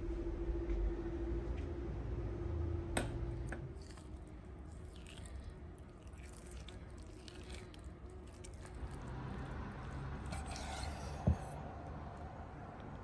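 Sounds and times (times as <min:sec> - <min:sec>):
knife slicing on cutting board: 0:10.2 - 0:11.6.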